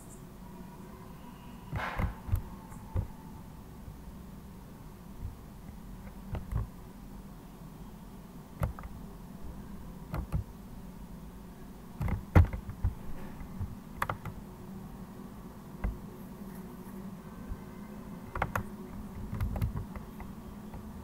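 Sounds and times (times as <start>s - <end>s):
steady low hum: 0.0s - 21.0s
computer keys clicking: 13.6s - 14.4s, 18.3s - 20.9s.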